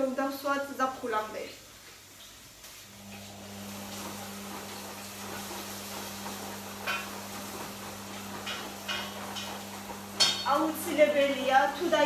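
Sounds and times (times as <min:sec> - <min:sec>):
utensil clinking on pot: 0:08.2 - 0:10.6.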